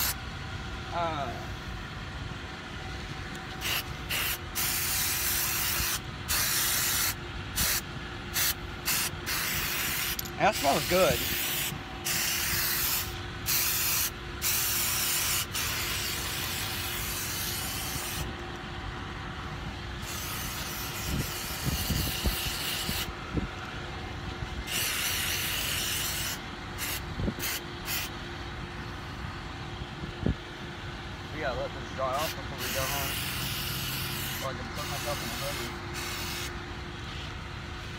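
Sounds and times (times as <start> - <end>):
aerosol spray hissing: 8.4 - 18.2.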